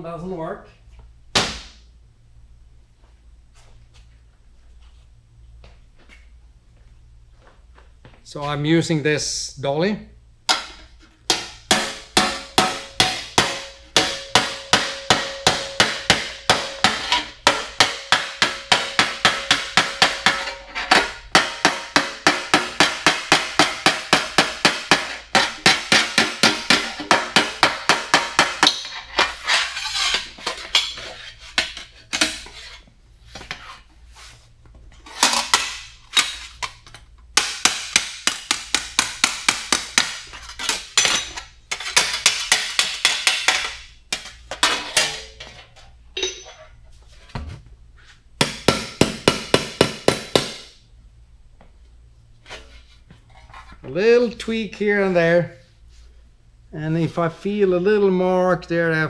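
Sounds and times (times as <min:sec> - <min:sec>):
hammer striking sheet steel: 0:10.5 - 0:29.0, 0:37.4 - 0:41.3, 0:48.4 - 0:50.8.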